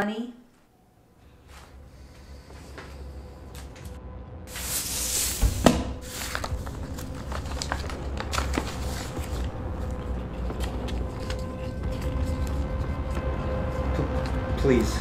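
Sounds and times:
low steady hum: 0.0 - 15.0
paper money rustling: 4.5 - 13.2.

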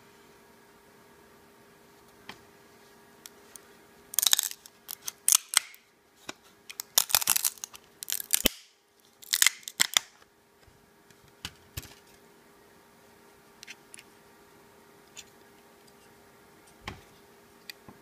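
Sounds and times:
hard plastic crackling and clicking: 4.2 - 5.8, 6.7 - 10.1.

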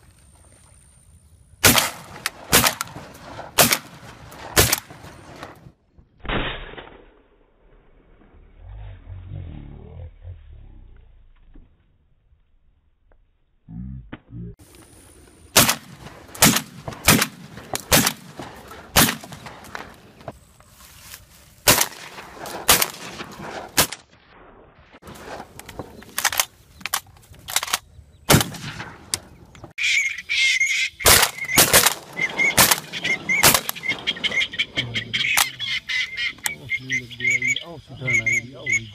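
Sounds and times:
shotgun shots: 1.6 - 5.6, 15.5 - 20.1, 21.6 - 24.0, 27.5 - 29.2, 31.0 - 34.4
ducks quacking: 29.8 - 38.9.

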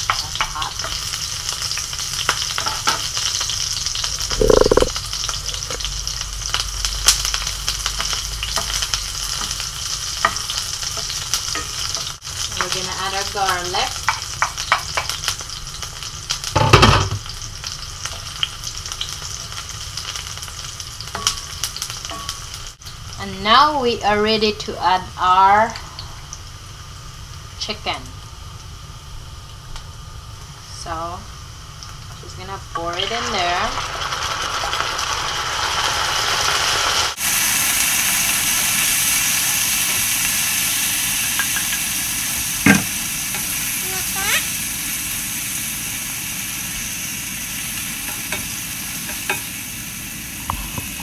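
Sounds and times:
onions sizzling in oil: 0.0 - 51.0
thump: 42.7 - 43.0.

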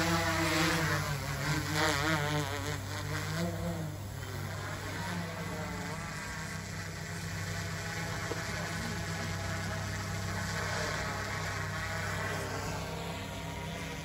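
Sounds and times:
drone propellers buzzing: 0.0 - 14.0.

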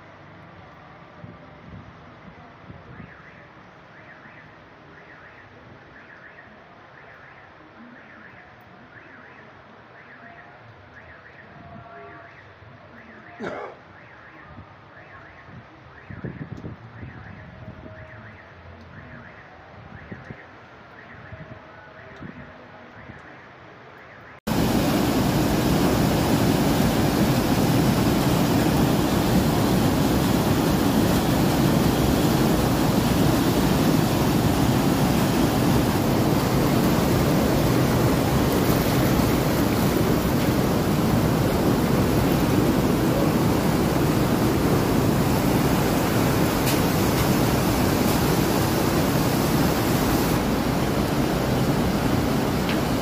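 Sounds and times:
floodwater rushing: 24.5 - 53.0.

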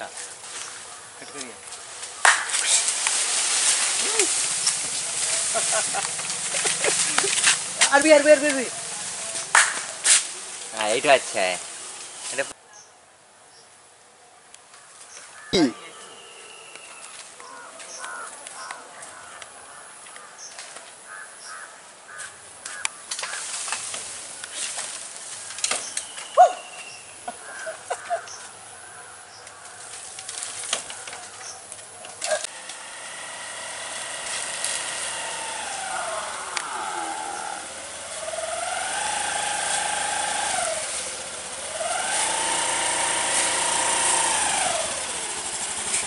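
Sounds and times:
motor scooter engine humming: 0.0 - 12.2, 25.3 - 46.0
birds chirping and calling: 0.0 - 12.9, 14.8 - 24.7, 25.3 - 32.5, 33.9 - 42.6.

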